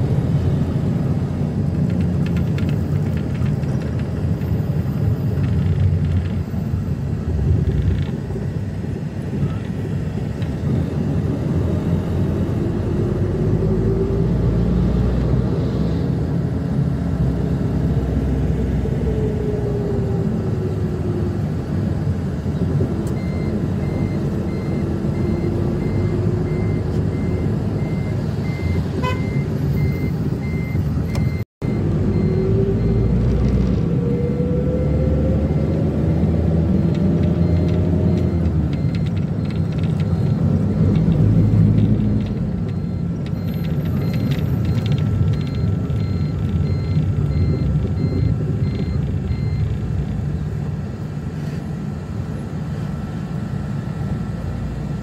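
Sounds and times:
road noise: 0.0 - 55.0
van engine running: 35.5 - 55.0.

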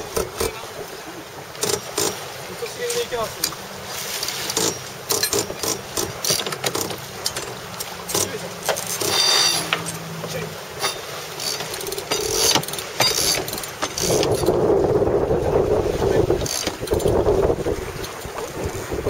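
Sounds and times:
winch ratchet clicking: 1.6 - 2.2, 4.2 - 10.0, 10.8 - 14.6, 16.4 - 17.2
wind buffeting microphone: 13.3 - 19.0.

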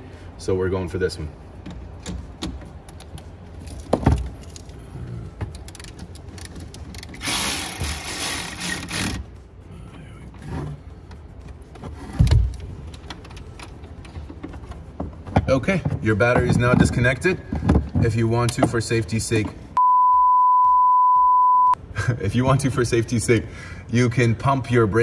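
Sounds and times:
cordless electric ratchet running: 7.0 - 9.2.

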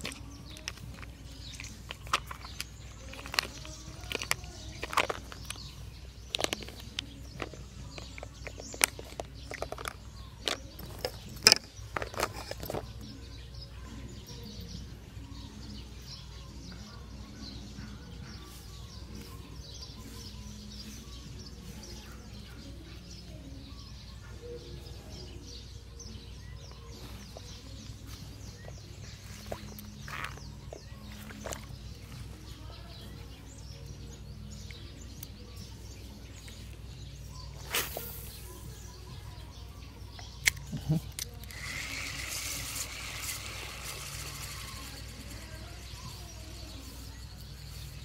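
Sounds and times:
gear handling clicks and knocks: 0.0 - 13.1
outdoor background noise: 0.0 - 48.0.

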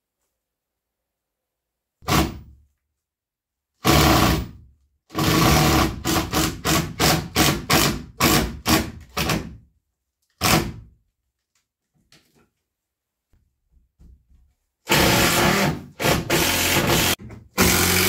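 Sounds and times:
cordless drill driving screw into wood: 3.8 - 9.5, 14.9 - 18.0.

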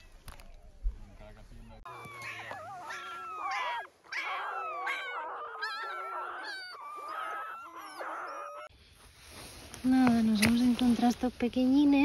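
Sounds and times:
puppies squealing and whining: 1.5 - 8.7.

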